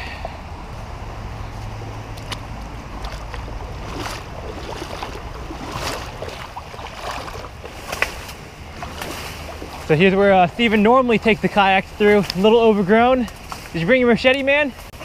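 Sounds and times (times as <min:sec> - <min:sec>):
steady low rumble: 0:00.0 - 0:13.3
water splashing against legs: 0:01.6 - 0:10.0.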